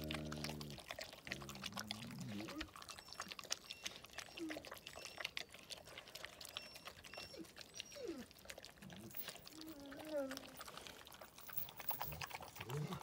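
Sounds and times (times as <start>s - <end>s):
puppy whimpers: 1.9s - 10.8s.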